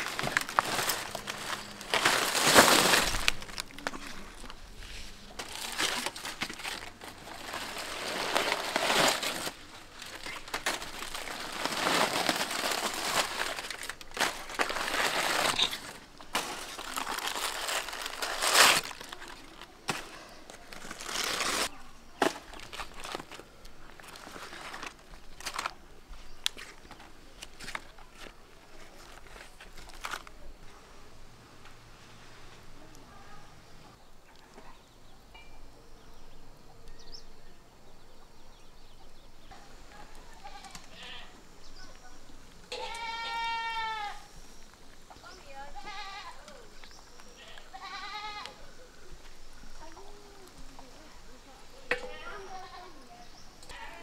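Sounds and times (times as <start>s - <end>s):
foil and leaf wrapping crinkling: 0.0s - 30.8s, 39.5s - 48.6s.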